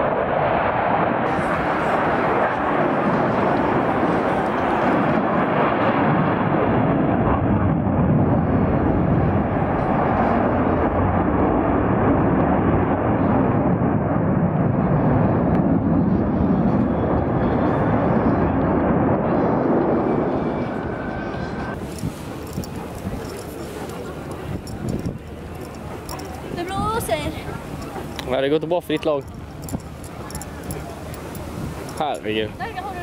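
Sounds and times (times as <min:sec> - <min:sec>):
fighter jet flying past: 0:00.0 - 0:26.6.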